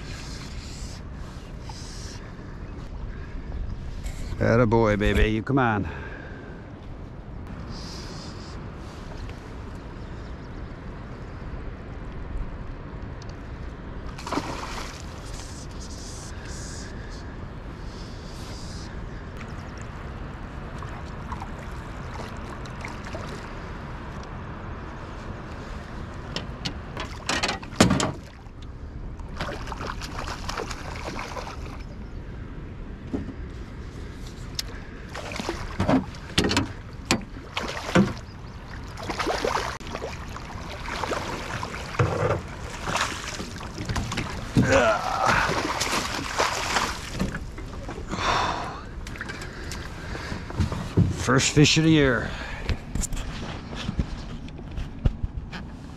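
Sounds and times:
moving water: 0.0 - 54.9
wind: 0.0 - 55.9
fish splashing at the surface: 14.2 - 15.2, 37.4 - 42.0, 42.6 - 47.2.

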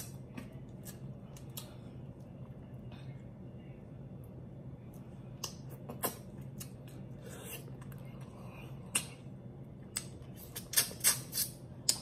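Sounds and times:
faint steady hum: 0.0 - 12.0
wet lip smacks and sucks: 9.9 - 12.0.

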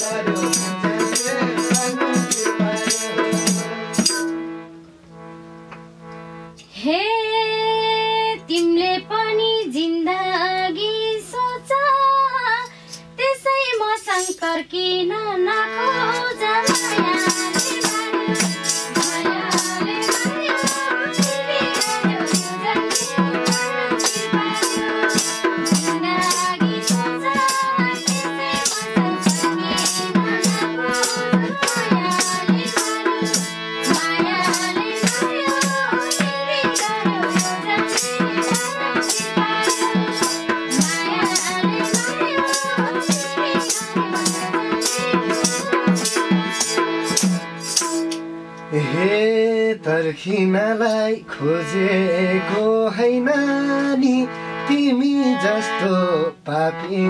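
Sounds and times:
jingling tambourine: 0.0 - 4.4, 16.1 - 48.2
harmonium playing a tune: 0.0 - 57.0.

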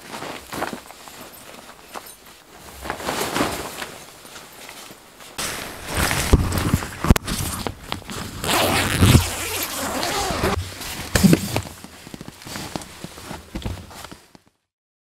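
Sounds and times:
tent fabric rustling: 0.0 - 14.6
zipper being worked: 8.4 - 11.7.

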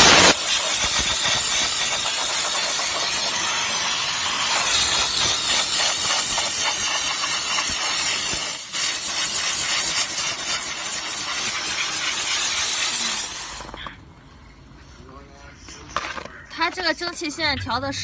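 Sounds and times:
steam washer hissing: 0.0 - 13.8.

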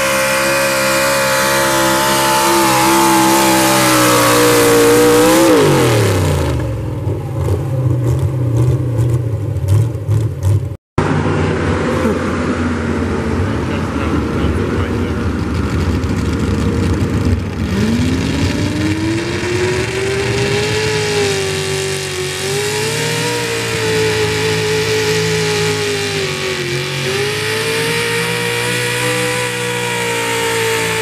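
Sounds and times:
truck engine revving hard: 0.0 - 31.0.

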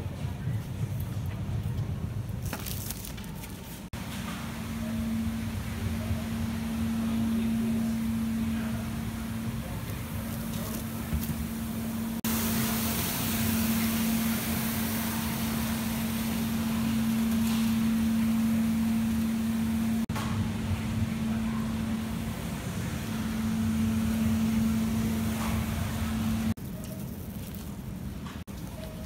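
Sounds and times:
floor scrubber motor hum: 4.0 - 26.6.

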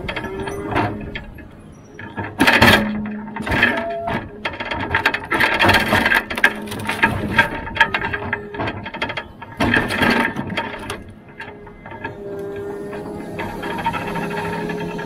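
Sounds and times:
crane rattling clicking and knocking: 0.0 - 15.0
hydraulics and engine hum: 0.0 - 15.0.

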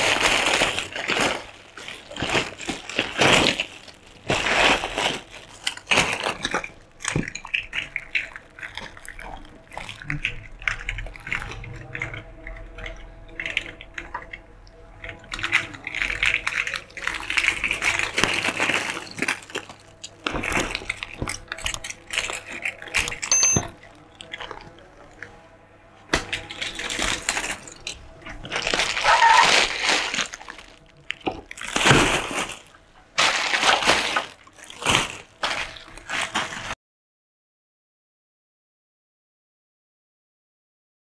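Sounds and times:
plastic bags crinkling: 0.0 - 12.2, 15.1 - 25.2, 26.1 - 36.8
plastic toys clicking together: 0.0 - 24.8.

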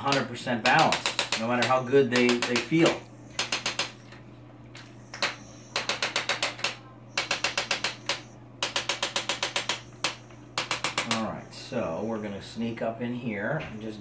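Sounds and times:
adjusting instrument clicking: 0.0 - 4.2
low steady hum: 0.0 - 14.0.

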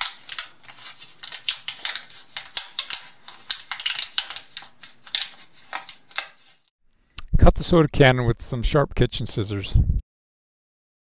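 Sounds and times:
aluminium crinkling and crackling: 0.0 - 6.7.

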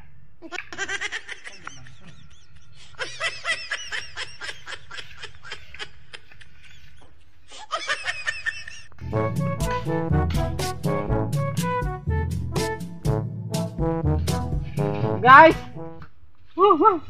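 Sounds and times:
person laughing: 0.4 - 8.9.

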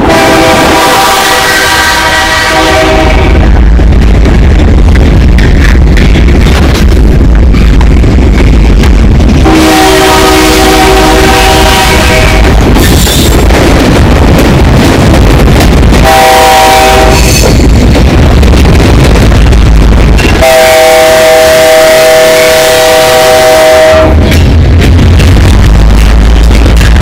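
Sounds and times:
locomotive air horn blasts: 0.0 - 3.5, 9.4 - 12.5, 16.0 - 17.3, 20.4 - 24.2
rumble of passing train: 0.0 - 27.0.

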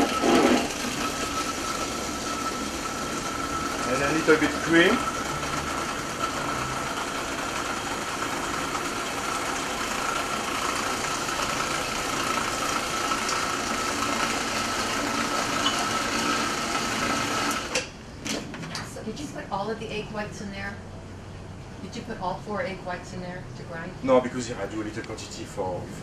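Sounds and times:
food processor motor whining: 0.0 - 17.8.

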